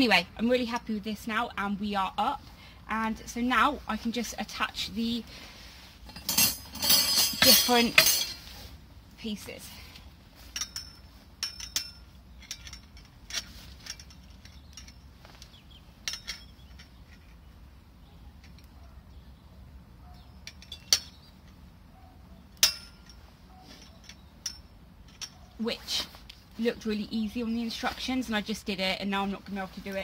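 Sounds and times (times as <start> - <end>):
metal hooks clinking on pole: 6.1 - 8.4, 10.4 - 17.4, 20.0 - 21.7, 22.4 - 26.0.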